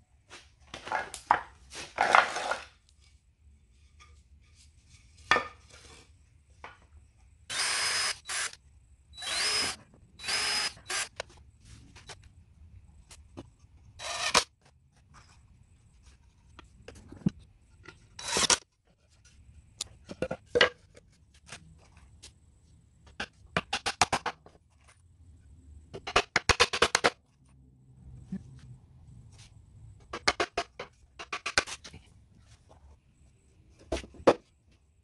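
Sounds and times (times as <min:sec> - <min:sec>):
cordless drill running: 0:07.5 - 0:08.6, 0:09.2 - 0:11.2, 0:18.2 - 0:18.5.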